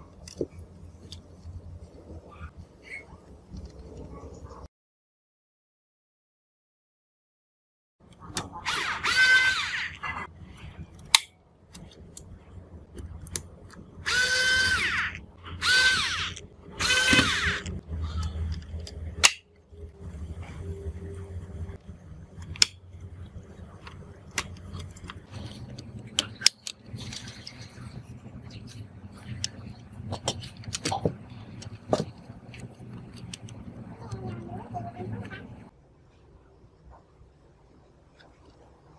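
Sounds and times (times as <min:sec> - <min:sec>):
electric screwdriver whirring: 0:08.6 - 0:10.0, 0:14.0 - 0:17.7
plastic parts clicking: 0:22.4 - 0:22.8, 0:23.8 - 0:27.8, 0:28.6 - 0:34.2.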